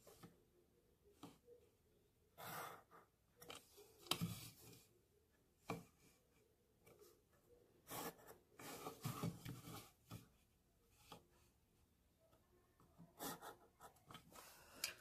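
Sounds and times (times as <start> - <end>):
pencil scratching along a ruler: 2.4 - 3.1, 7.8 - 10.0, 13.0 - 14.5.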